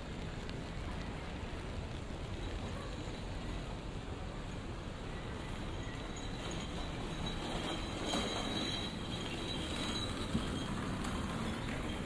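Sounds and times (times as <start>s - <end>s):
traffic rumble: 0.0s - 12.0s
tyres hissing on wet pavement: 0.0s - 12.0s
faint high squealing: 5.1s - 12.0s.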